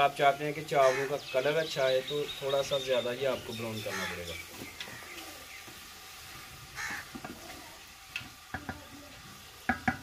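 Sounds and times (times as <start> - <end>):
faint sizzling: 0.0 - 10.0
spoon knocking against pot: 9.7 - 10.0.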